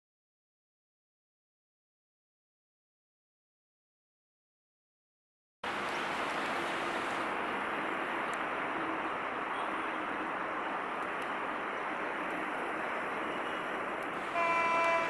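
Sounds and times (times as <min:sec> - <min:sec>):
distant road traffic hiss: 0:05.6 - 0:15.0.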